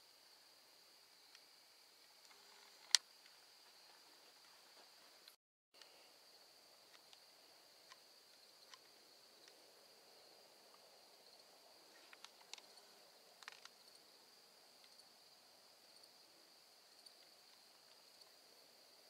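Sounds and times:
small ticks and clicks: 0:01.3 - 0:06.0, 0:06.8 - 0:09.7, 0:11.9 - 0:14.0, 0:14.8 - 0:15.1, 0:17.0 - 0:18.4
insect chorus trilling: 0:05.8 - 0:19.0.

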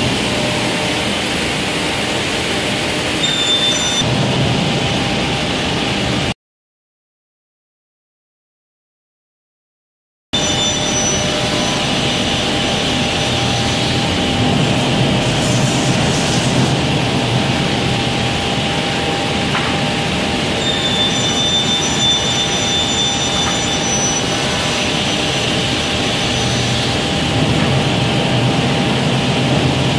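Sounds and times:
high saw whine: 0:00.0 - 0:04.1, 0:10.4 - 0:29.6
saw and dust extraction hum: 0:10.4 - 0:29.9.

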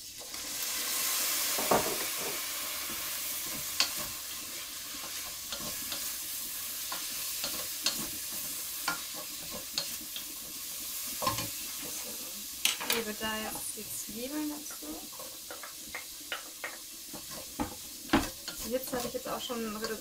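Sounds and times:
tofu sizzling in a pan: 0:00.0 - 0:20.0
wooden spoon knocking on pan: 0:01.6 - 0:02.4, 0:14.5 - 0:20.0.

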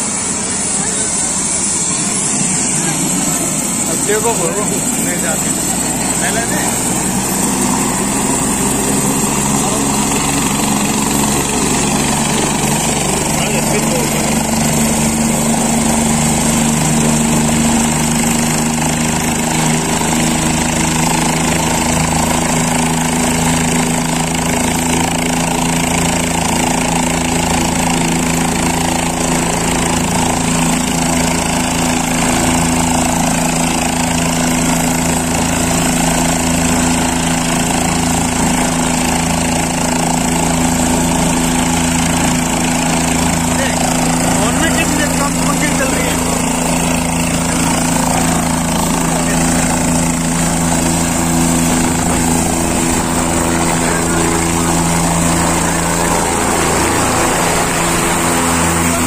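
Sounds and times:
helicopter idling: 0:00.0 - 0:59.0.

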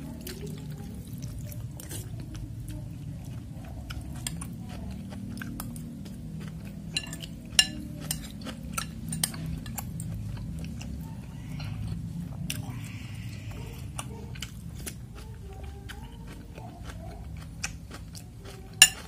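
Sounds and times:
chewing: 0:00.0 - 0:19.0
cutlery clinking against a bowl: 0:06.8 - 0:11.0, 0:18.7 - 0:19.0.

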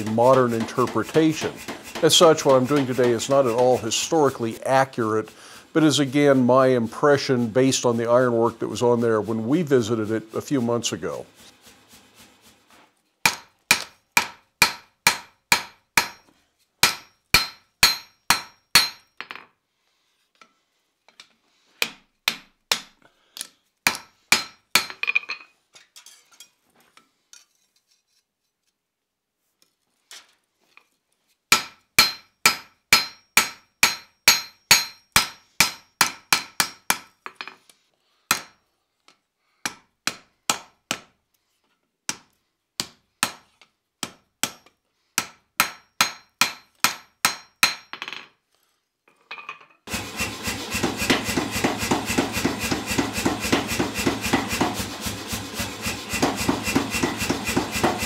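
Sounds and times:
hammer striking hot iron on anvil: 0:00.0 - 0:03.8, 0:13.2 - 0:19.1, 0:23.9 - 0:25.1, 0:31.5 - 0:37.1, 0:45.2 - 0:48.0, 0:49.9 - 0:58.0.

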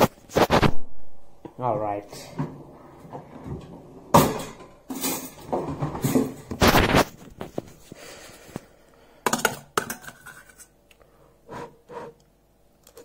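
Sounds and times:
utensil scraping in metal pot: 0:09.9 - 0:10.8.

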